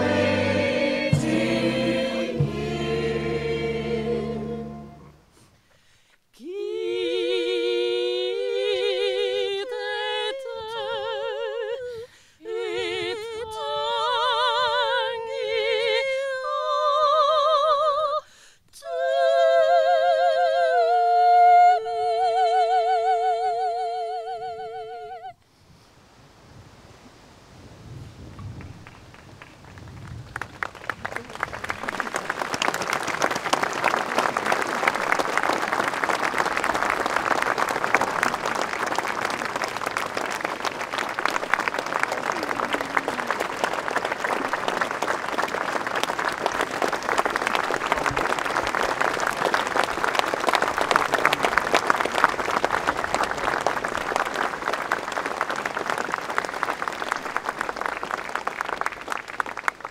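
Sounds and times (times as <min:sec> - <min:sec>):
large crowd applauding: 0:00.0 - 0:02.8, 0:28.6 - 0:59.9.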